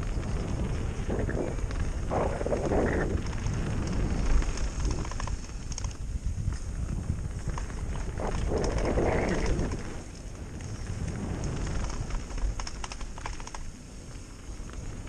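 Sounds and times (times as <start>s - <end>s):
wind rumbling on microphone: 0.0s - 15.0s
sharp rattling clicks: 1.8s - 6.0s, 11.4s - 13.7s.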